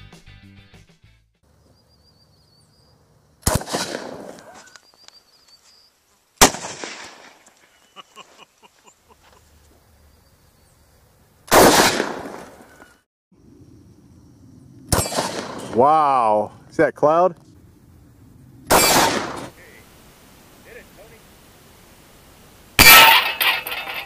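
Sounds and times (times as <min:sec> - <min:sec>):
shotgun shots: 0:03.4 - 0:04.5, 0:06.4 - 0:07.4, 0:11.5 - 0:12.7, 0:14.9 - 0:15.8, 0:18.7 - 0:19.6.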